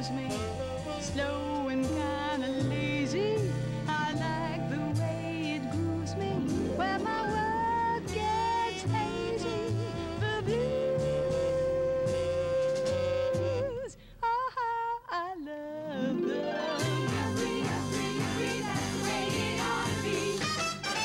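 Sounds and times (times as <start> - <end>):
band accompaniment: 0.0 - 13.6, 16.3 - 21.0
woman singing: 0.0 - 20.5.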